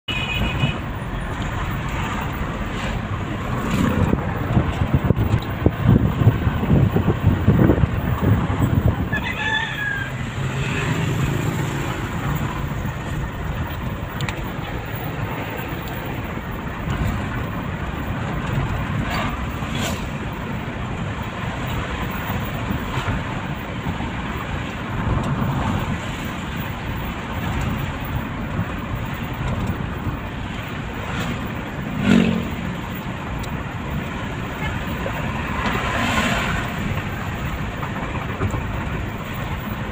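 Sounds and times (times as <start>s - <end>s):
car cabin road and engine noise: 0.0s - 39.9s
high call outside: 8.8s - 12.5s.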